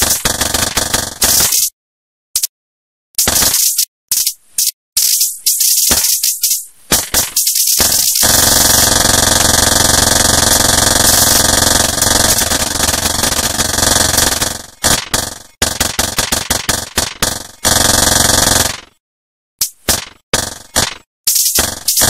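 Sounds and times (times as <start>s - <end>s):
hissing static bursts: 3.2s - 8.9s, 10.5s - 11.5s.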